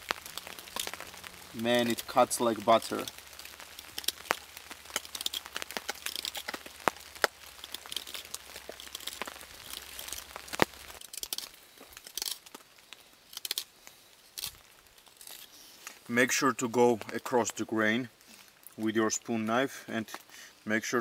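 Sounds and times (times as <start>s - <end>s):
knife scraping and cutting wood: 3.8s - 12.6s, 14.3s - 16.0s.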